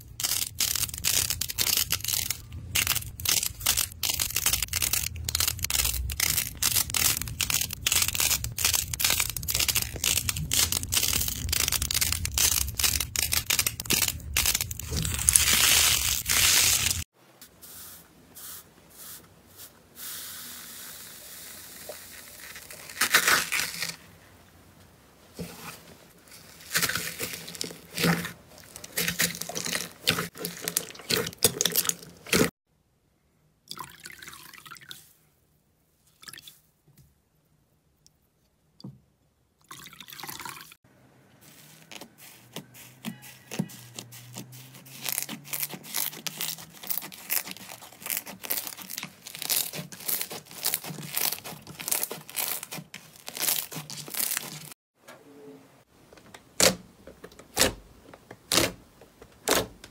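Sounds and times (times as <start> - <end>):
crunchy slime crackling: 0.0 - 17.1, 41.5 - 54.8
foam slime squishing: 0.0 - 24.0, 41.4 - 54.8.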